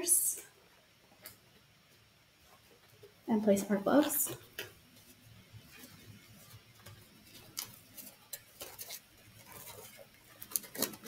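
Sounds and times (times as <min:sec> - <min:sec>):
rubber gloves rustling and snapping: 0:03.9 - 0:11.0.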